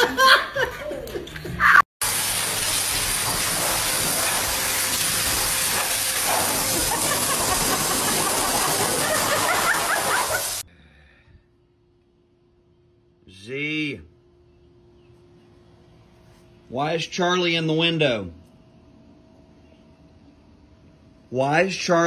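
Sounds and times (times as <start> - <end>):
pet grooming dryer blowing air: 2.0 - 10.6.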